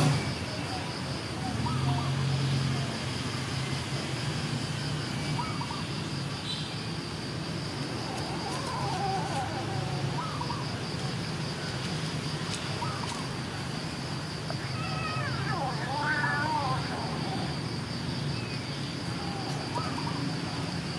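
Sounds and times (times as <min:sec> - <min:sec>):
cats meowing: 0:08.0 - 0:10.6, 0:14.5 - 0:17.5.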